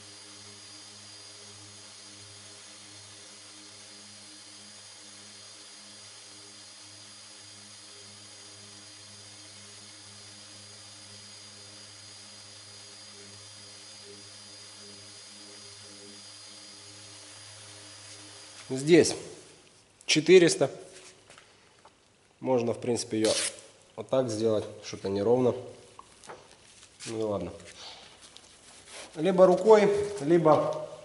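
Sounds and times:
orbital sander humming: 0:00.0 - 0:19.6.

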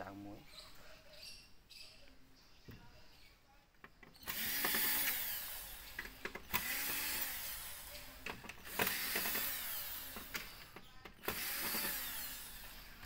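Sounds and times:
electric screwdriver driving screws: 0:04.2 - 0:13.0.

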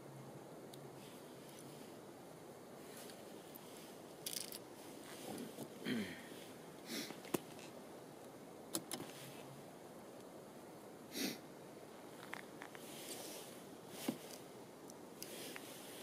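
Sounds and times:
sharp small clicks: 0:04.2 - 0:04.7, 0:07.2 - 0:09.2
person sniffing: 0:05.4 - 0:07.2, 0:11.1 - 0:11.4.

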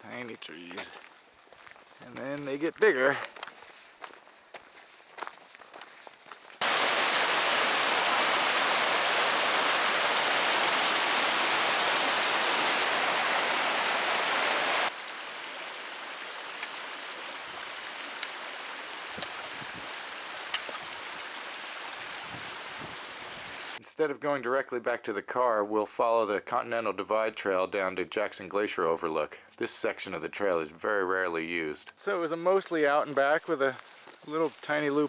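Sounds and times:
water rushing over rocks: 0:06.6 - 0:23.8.

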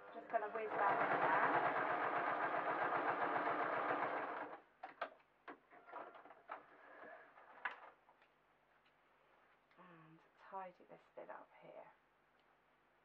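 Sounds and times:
sewing machine running: 0:00.1 - 0:04.6.

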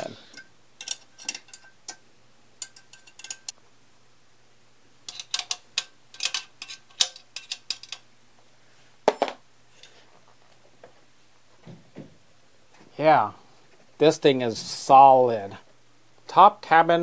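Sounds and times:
hand tool clinking on metal: 0:00.0 - 0:02.0, 0:02.6 - 0:03.5, 0:05.1 - 0:08.0.

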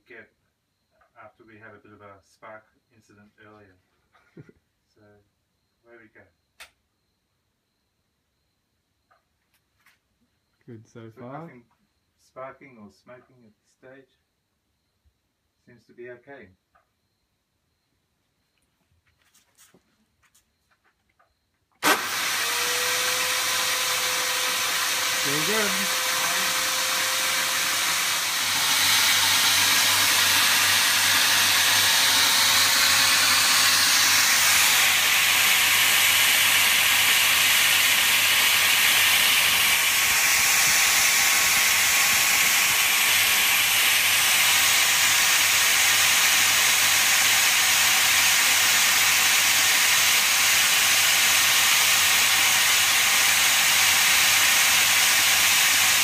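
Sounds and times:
electric drill running: 0:21.8 - 0:56.0.

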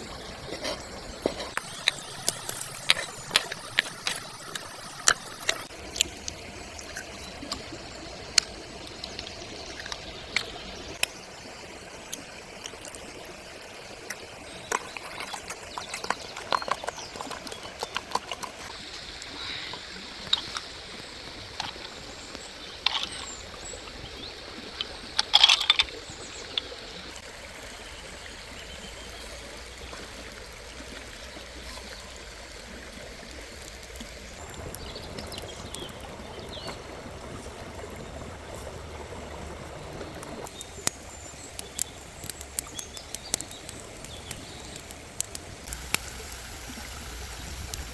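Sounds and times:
steady cooking hiss: 0:00.0 - 0:16.5, 0:17.1 - 0:25.2, 0:25.9 - 0:47.9.

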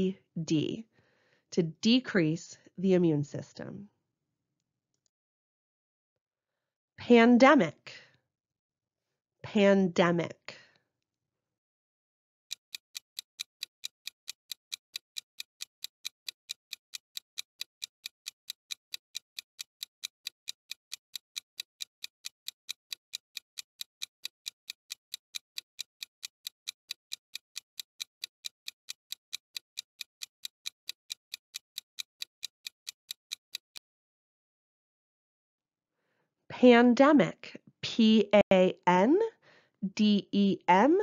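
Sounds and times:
clock ticking: 0:12.5 - 0:33.8.

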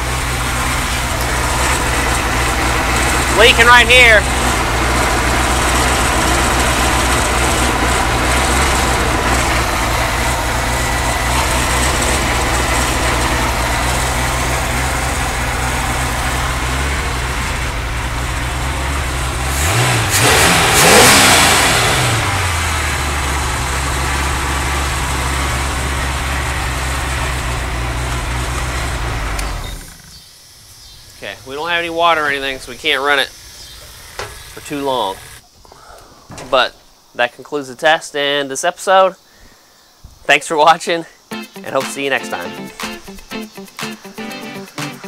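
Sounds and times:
boat engine idling and revving: 0:00.0 - 0:30.2.

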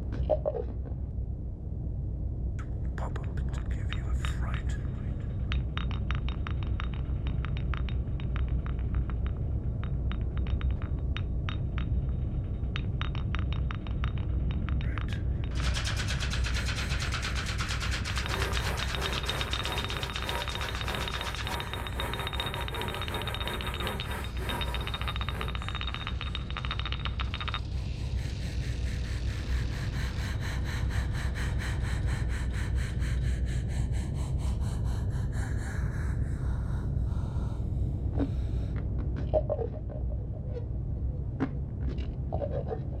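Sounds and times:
low steady drone: 0:00.0 - 0:43.0
fast pulsing texture: 0:15.0 - 0:31.2.

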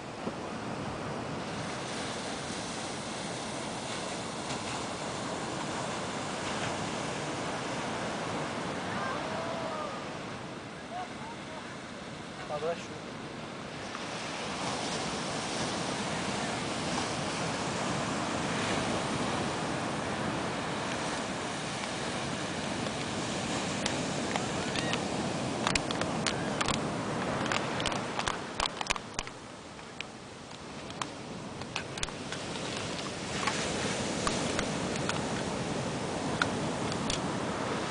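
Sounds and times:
waves breaking on beach: 0:00.0 - 0:37.9
raindrops ticking on microphone: 0:23.8 - 0:35.6.

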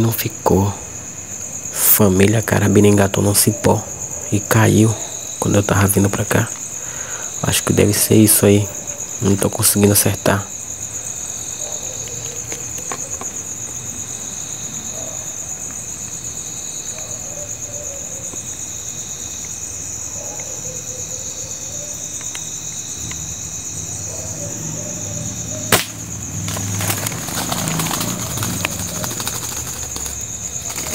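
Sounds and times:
night insects trilling: 0:00.0 - 0:30.9
faint ticks: 0:22.1 - 0:23.2.

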